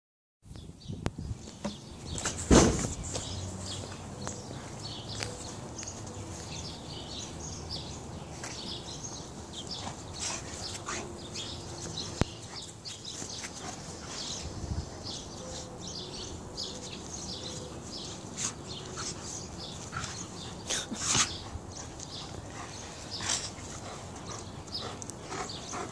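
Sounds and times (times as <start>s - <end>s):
birds chirping: 0.6s - 25.9s
dogs play-fighting: 9.4s - 15.4s, 17.7s - 25.9s.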